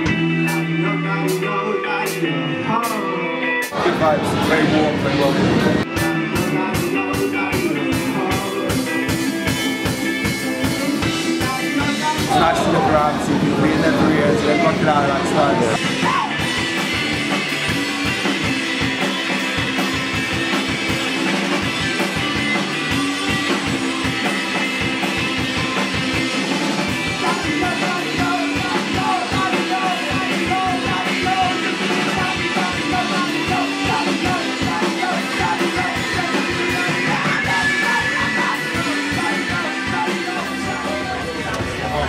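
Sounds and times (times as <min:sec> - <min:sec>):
person singing: 0:00.0 - 0:16.6, 0:27.1 - 0:42.0
live rock band playing: 0:00.0 - 0:42.0.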